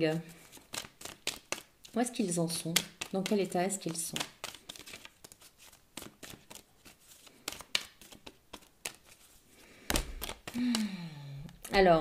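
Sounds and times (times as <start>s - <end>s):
cards being shuffled by hand: 0.1s - 11.8s
person humming: 10.6s - 11.6s.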